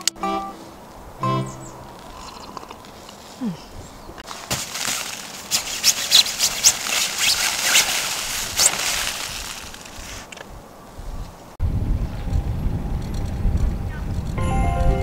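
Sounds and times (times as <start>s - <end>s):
tent fabric rustling and flapping: 4.2s - 10.4s.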